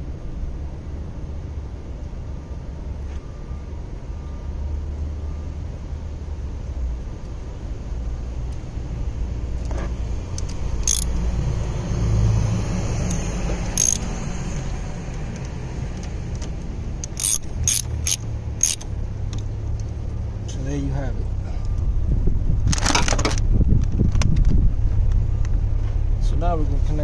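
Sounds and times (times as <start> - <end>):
steady low rumble: 0.0 - 27.0
ratchet wrench clicking: 10.3 - 11.2, 13.1 - 14.1, 17.0 - 18.9.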